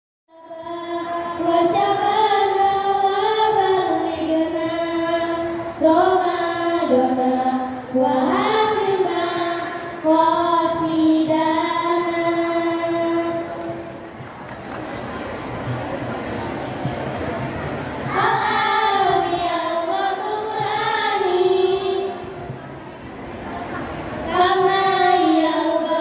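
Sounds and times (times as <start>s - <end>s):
girls singing in unison: 0.3s - 14.0s, 18.0s - 22.6s, 23.3s - 26.0s.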